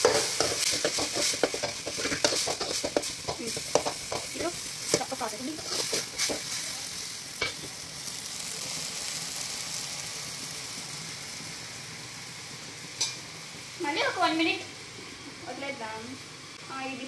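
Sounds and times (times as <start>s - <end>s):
spatula scraping pan: 0.0s - 6.6s
tomatoes sizzling in pan: 0.0s - 17.0s.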